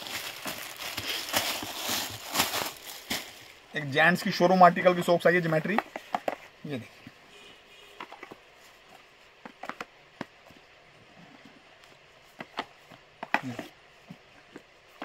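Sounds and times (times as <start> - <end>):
cardboard boxes tapping and knocking: 0.0 - 3.3, 4.2 - 6.5, 8.0 - 10.7, 12.3 - 15.0.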